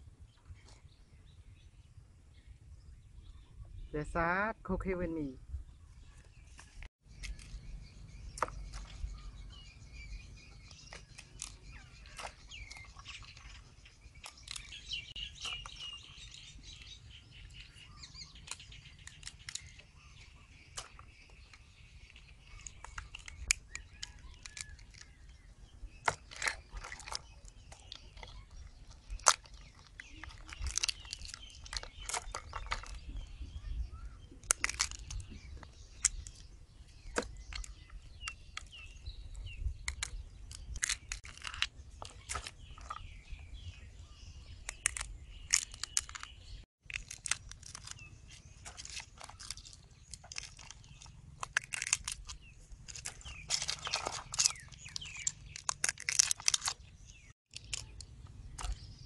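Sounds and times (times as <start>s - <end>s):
birds chirping: 0.2s - 59.0s
crab shells cracking by hand: 10.9s - 15.9s, 18.2s - 33.1s, 34.3s - 36.5s, 39.6s - 43.0s, 44.6s - 58.9s.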